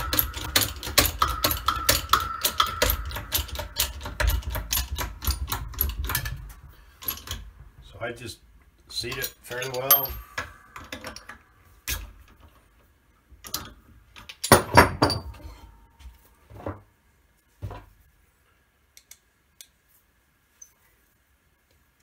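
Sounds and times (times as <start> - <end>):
metal clanks and knocks: 0.0 - 8.0, 9.0 - 12.8, 13.4 - 16.9.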